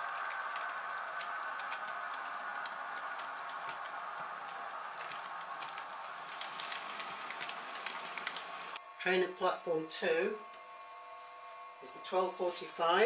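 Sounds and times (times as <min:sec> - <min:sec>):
model train motor whir: 0:00.0 - 0:08.8
wheels clicking on rails: 0:00.0 - 0:08.8.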